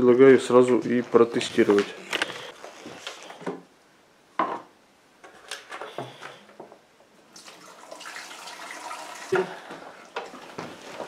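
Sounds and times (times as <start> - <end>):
water pouring into tank: 7.3 - 10.2.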